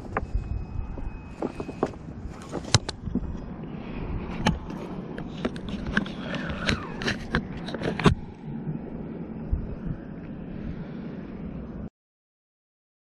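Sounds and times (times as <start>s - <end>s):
wind rumble on microphone: 0.0s - 11.9s
sharp clicks and knocks: 0.9s - 3.4s, 4.4s - 8.3s.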